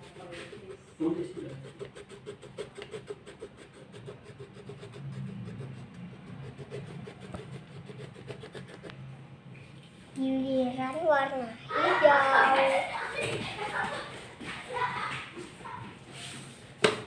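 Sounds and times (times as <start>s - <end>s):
pencil scratching on paper: 0.0s - 9.0s.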